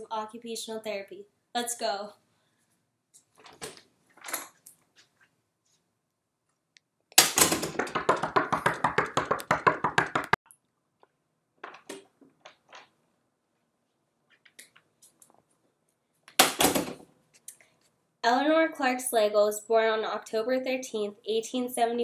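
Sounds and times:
rapid loud knocks: 0:07.3 - 0:10.4.

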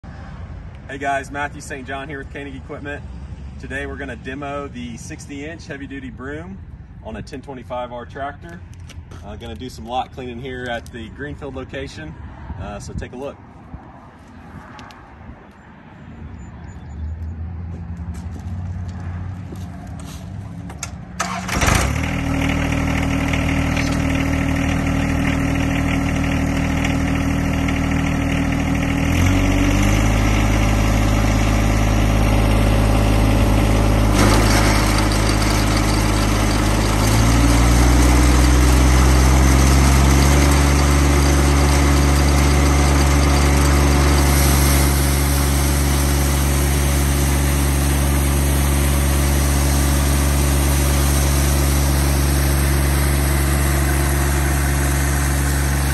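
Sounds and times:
tractor diesel engine running: 0:18.2 - 0:55.9.

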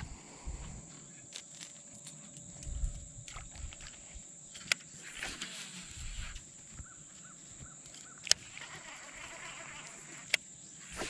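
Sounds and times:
line hissing off spool: 0:05.0 - 0:06.4.

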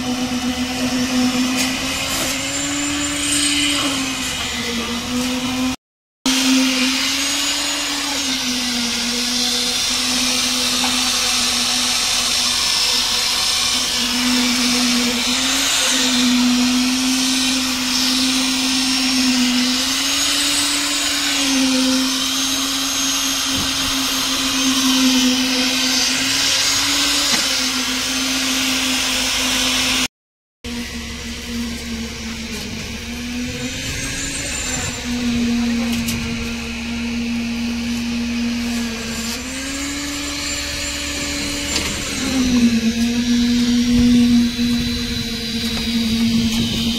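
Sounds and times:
concrete vibrator motor hum: 0:30.7 - 0:46.9.

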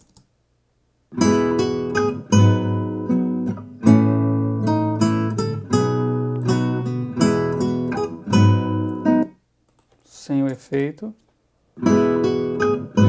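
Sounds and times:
acoustic guitar strumming chords: 0:01.1 - 0:09.3, 0:11.8 - 0:13.0.

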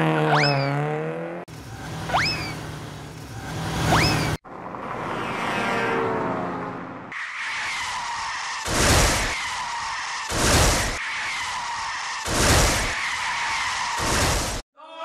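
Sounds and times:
falling engine-like tone: 0:00.0 - 0:08.6
tyre skid screech: 0:07.1 - 0:14.4.

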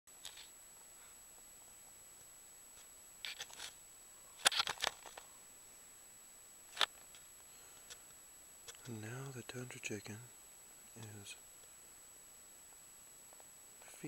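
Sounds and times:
camera handling clicks and scrapes: 0:03.2 - 0:03.8, 0:04.4 - 0:05.2.

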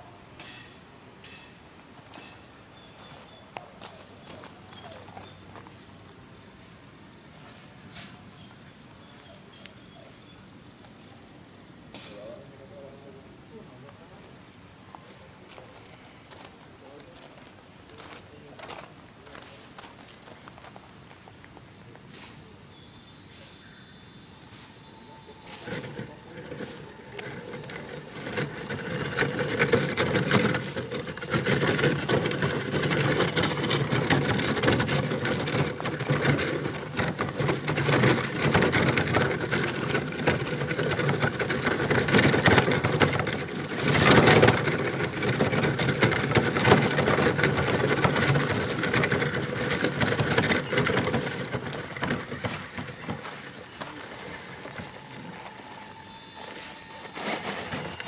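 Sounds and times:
tyres crunching over gravel: 0:14.9 - 0:22.4, 0:24.6 - 0:58.0.

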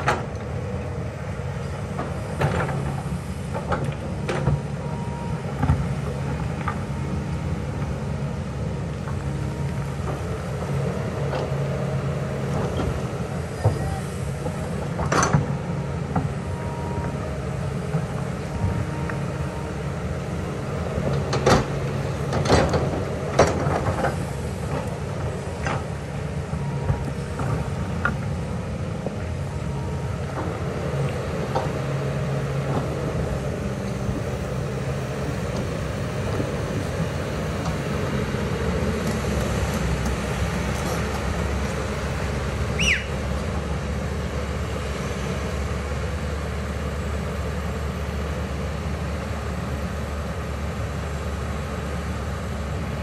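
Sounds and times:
excavator diesel engine running: 0:00.0 - 0:53.0
short falling squeal: 0:42.8 - 0:43.2.

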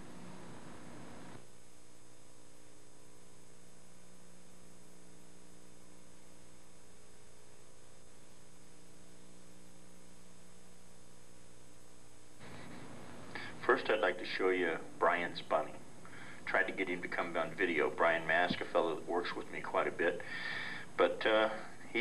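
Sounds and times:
electrical mains hum: 0:00.0 - 0:22.0
faint hiss: 0:12.4 - 0:22.0.

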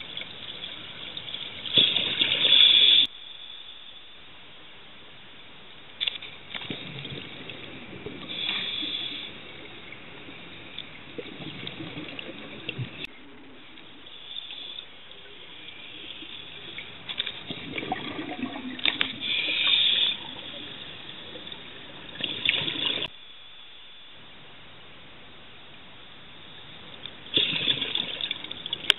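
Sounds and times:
exhaled air bubbling: 0:06.6 - 0:23.1, 0:27.3 - 0:28.9
regulator hissing inhalations: 0:08.3 - 0:09.5, 0:19.2 - 0:20.4.

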